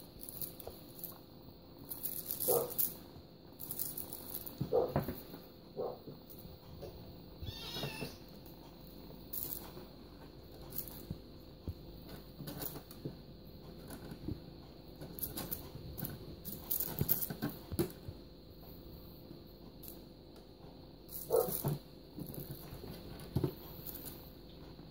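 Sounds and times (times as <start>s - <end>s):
kitten meowing: 7.4s - 8.2s.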